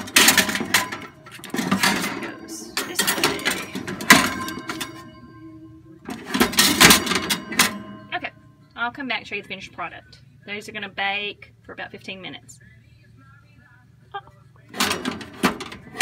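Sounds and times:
metal tray rattling on oven rack: 0:00.0 - 0:05.5, 0:06.1 - 0:08.1, 0:14.8 - 0:16.0.

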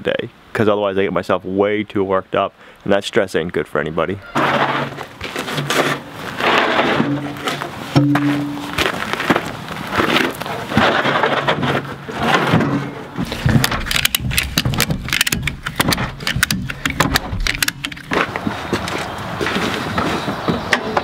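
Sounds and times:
wooden crate knocking and scraping: 0:04.4 - 0:21.0
ratchet strap clicking: 0:13.6 - 0:18.1.

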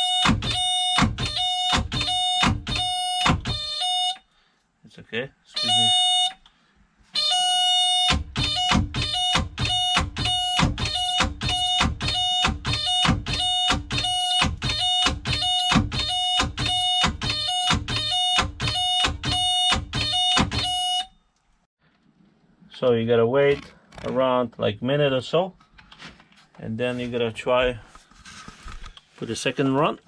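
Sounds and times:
warning buzzer beeping: 0:00.0 - 0:04.2, 0:05.6 - 0:06.4, 0:07.2 - 0:21.1.

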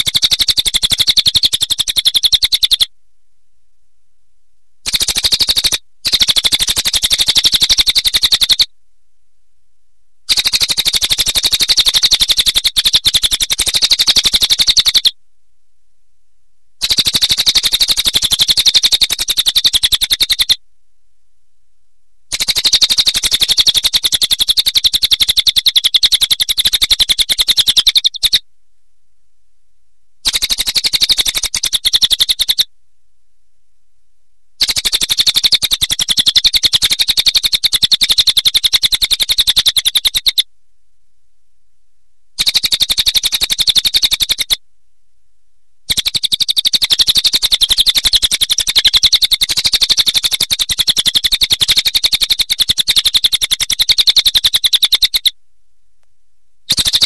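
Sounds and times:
jay rattling chatter calls: 0:00.0 - 0:02.9, 0:16.8 - 0:20.6, 0:22.3 - 0:28.4, 0:34.6 - 0:40.4, 0:42.5 - 0:44.5, 0:45.9 - 0:55.3.

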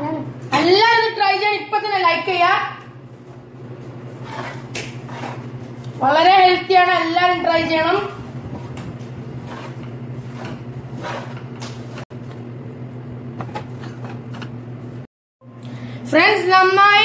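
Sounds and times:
spatula scraping a frying pan: 0:04.1 - 0:05.8, 0:09.3 - 0:12.0.

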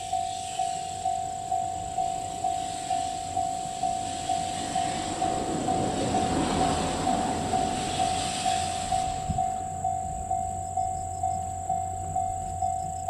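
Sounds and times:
steam locomotive rumbling: 0:00.0 - 0:13.0.

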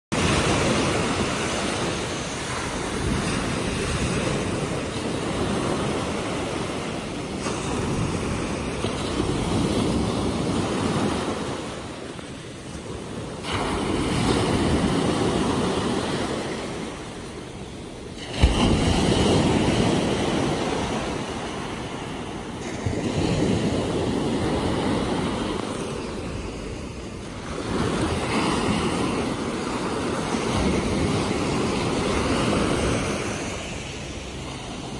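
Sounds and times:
ocean waves breaking on shore: 0:00.1 - 0:34.9.

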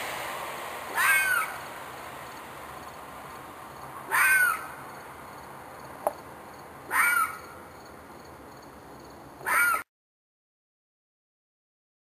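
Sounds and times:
animal harsh screeching call: 0:00.9 - 0:01.6, 0:04.1 - 0:04.8, 0:06.9 - 0:07.5, 0:09.4 - 0:09.9.

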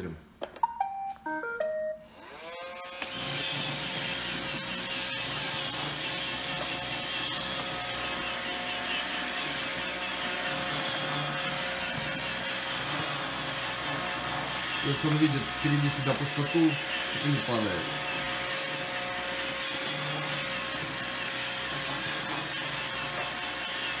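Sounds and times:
robot vacuum beeping tune: 0:00.6 - 0:02.8
robot vacuum motor humming: 0:02.0 - 0:24.0.

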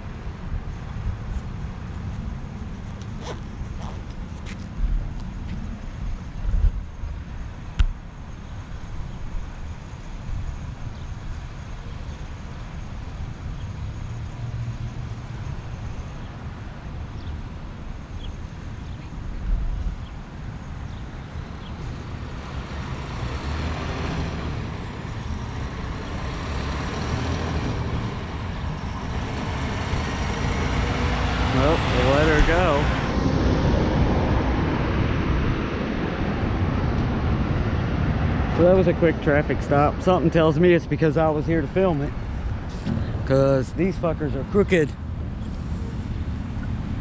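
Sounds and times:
road traffic rumble: 0:00.0 - 0:47.0
semi-truck approaching: 0:21.3 - 0:47.0.

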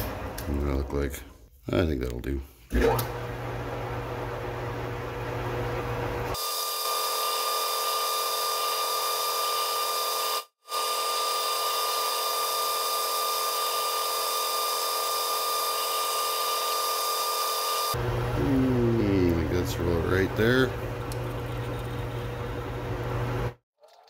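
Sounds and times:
lathe drilling metal whine: 0:06.4 - 0:18.1.

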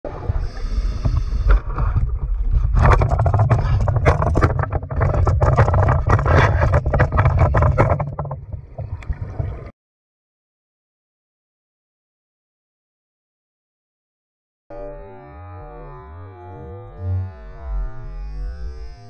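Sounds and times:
low underwater rumble: 0:00.1 - 0:09.7
clicks knocks and scraping: 0:01.0 - 0:09.5.

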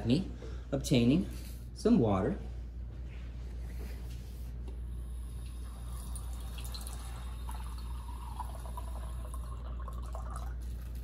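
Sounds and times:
water filling glass beaker: 0:05.6 - 0:11.0.

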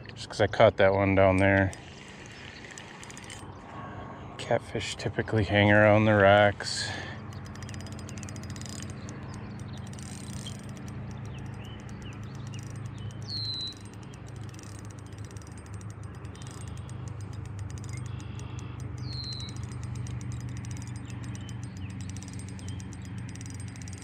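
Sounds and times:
birds chirping: 0:00.0 - 0:24.0
steady low hum: 0:00.0 - 0:24.0
fine rapid ticking: 0:07.0 - 0:24.0.

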